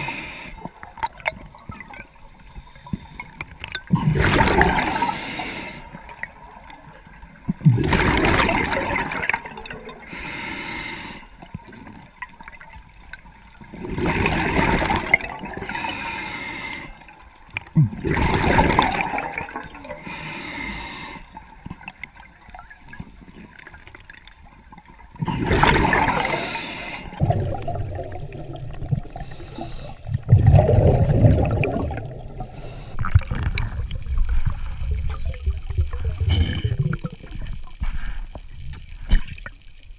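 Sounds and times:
regulator breath noise: 0:00.0 - 0:00.7, 0:04.8 - 0:06.0, 0:10.0 - 0:11.4, 0:15.6 - 0:17.1, 0:19.9 - 0:21.4, 0:26.1 - 0:27.2, 0:29.2 - 0:30.1, 0:32.4 - 0:33.1
gurgling exhaled bubbles: 0:03.7 - 0:05.2, 0:07.5 - 0:10.2, 0:13.6 - 0:16.0, 0:17.6 - 0:20.1, 0:25.1 - 0:37.8.

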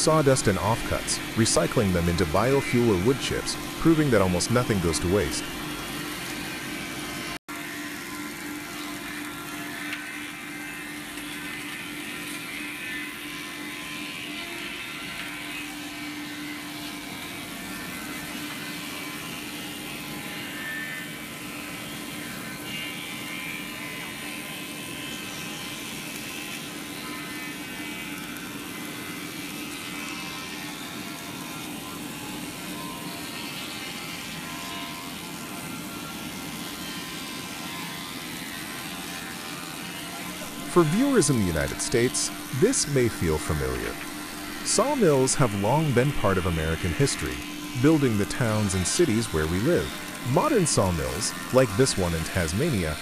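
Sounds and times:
steady hum: 0:00.0 - 0:06.2, 0:40.4 - 0:53.0
sawmill machinery drone: 0:00.0 - 0:53.0.

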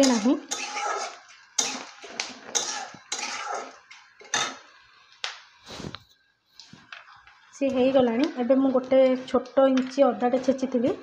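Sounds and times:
spatula scraping metal pan: 0:00.0 - 0:03.8
nuts frying in oil: 0:00.0 - 0:05.5, 0:06.9 - 0:11.0.

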